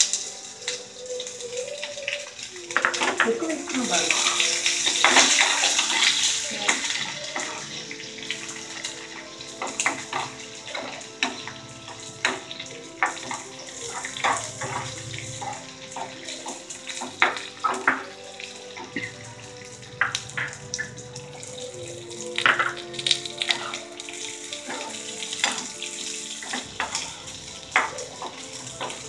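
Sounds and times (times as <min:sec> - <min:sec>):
onions sizzling in hot oil: 0:00.0 - 0:29.0.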